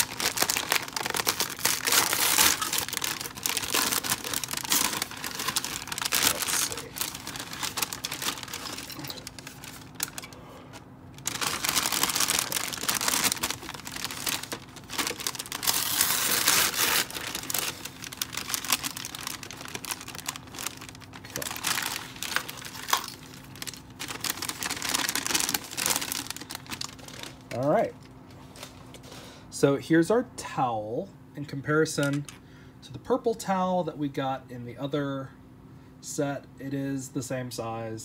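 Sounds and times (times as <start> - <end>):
paper bag crinkling: 0.0 - 10.4, 11.2 - 27.7.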